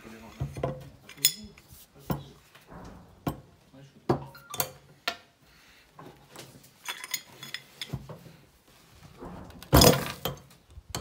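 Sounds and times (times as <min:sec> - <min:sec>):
loud clattering knock: 0:02.6 - 0:04.3, 0:09.1 - 0:10.5.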